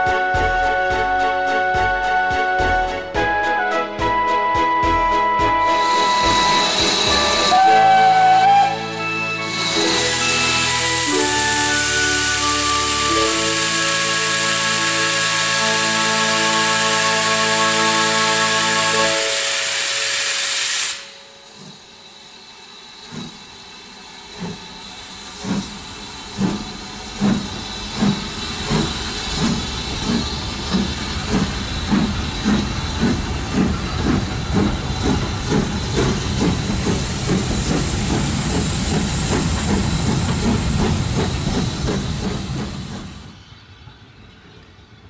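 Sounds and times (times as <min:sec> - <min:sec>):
steam hissing: 0:05.6 - 0:43.5
steam engine exhaust chuffs: 0:19.8 - 0:43.4.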